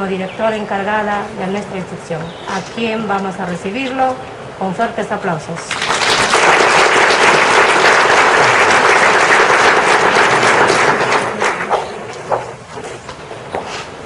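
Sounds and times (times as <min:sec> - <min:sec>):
audience applauding: 0:05.7 - 0:12.4.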